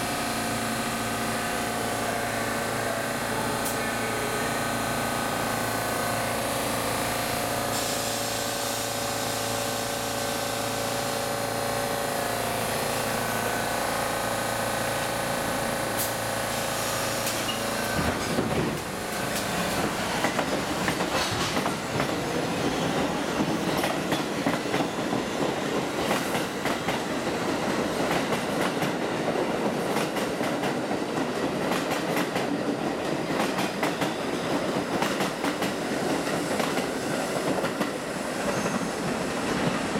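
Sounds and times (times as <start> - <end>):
train wheels clattering over rail joints: 17.2 - 39.9.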